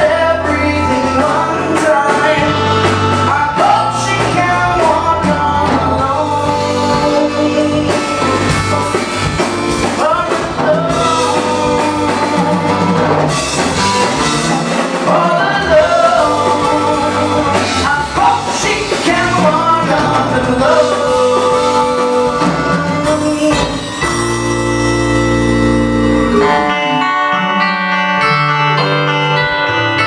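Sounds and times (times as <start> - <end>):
live rock band playing: 0.0 - 30.0.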